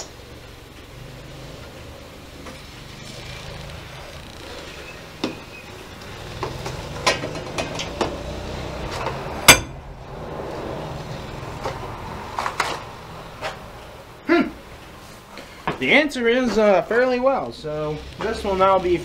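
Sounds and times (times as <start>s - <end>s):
steady low hum: 0.0s - 15.6s
sharp loud bang: 9.5s - 9.8s.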